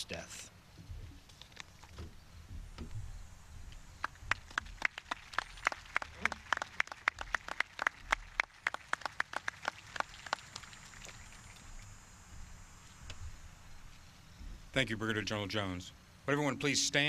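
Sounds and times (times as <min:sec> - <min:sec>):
scattered applause: 0:04.0 - 0:11.5.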